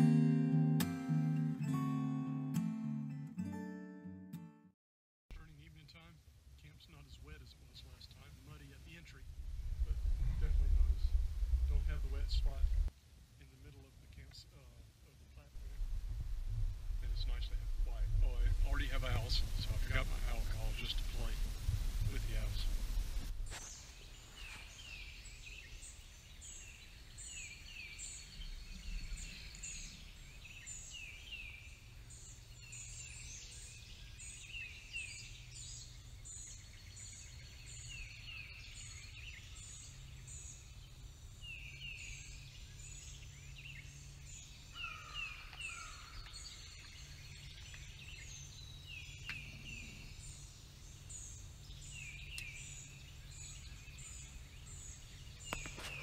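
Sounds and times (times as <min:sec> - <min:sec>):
faint low rumble: 0:05.3 - 0:26.7
birds singing: 0:17.0 - 0:56.0.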